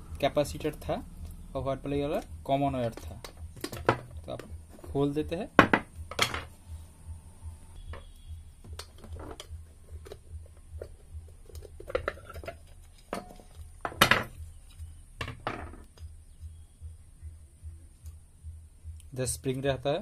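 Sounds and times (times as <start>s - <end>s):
metal clinks and knocks: 2.7s - 6.6s, 7.8s - 16.1s.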